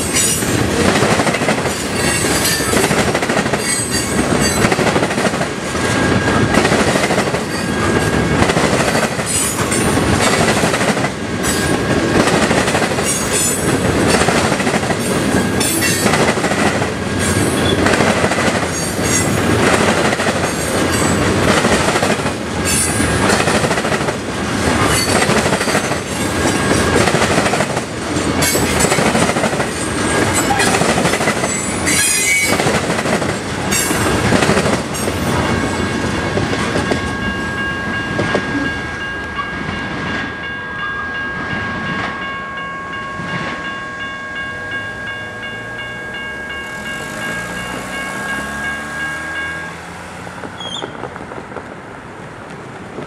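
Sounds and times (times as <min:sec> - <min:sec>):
crossing bell ringing: 0:00.0 - 0:23.9, 0:24.6 - 0:32.8, 0:33.4 - 0:51.1
train wheels clattering: 0:00.0 - 0:35.6
train wheels squealing: 0:01.7 - 0:02.9, 0:03.6 - 0:04.7, 0:17.2 - 0:17.9, 0:31.4 - 0:32.6, 0:50.5 - 0:51.1.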